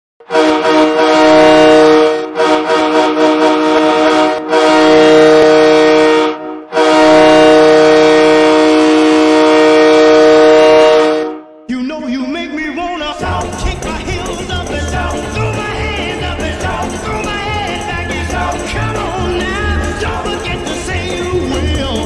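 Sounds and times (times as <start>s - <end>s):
goal horn blasting: 0.2s - 11.6s.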